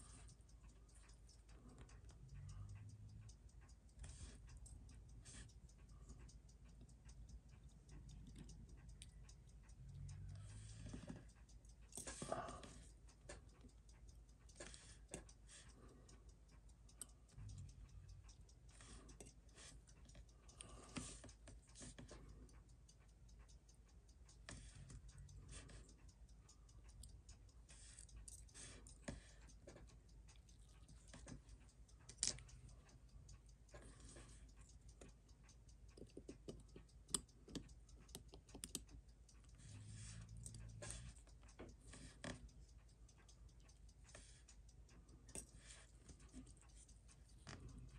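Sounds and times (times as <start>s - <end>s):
tweezers clicking on metal parts: 0.0s - 47.9s.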